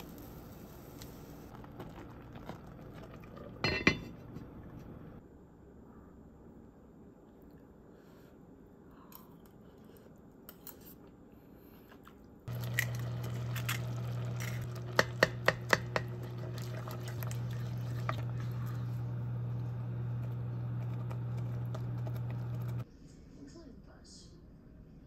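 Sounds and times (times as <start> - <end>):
porridge bubbling and popping: 0.0 - 3.8, 12.5 - 22.8
steady low hum: 12.5 - 22.8.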